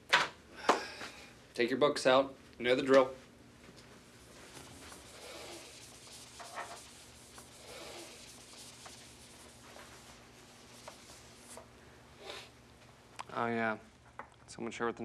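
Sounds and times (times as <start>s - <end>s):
paper and pencils rustling: 4.2s - 11.7s.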